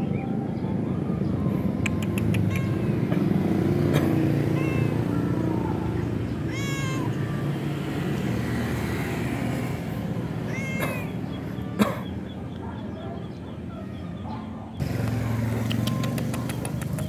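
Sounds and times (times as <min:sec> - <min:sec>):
cat meowing: 0:02.4 - 0:03.0, 0:04.4 - 0:05.2, 0:06.3 - 0:07.5, 0:10.4 - 0:11.2.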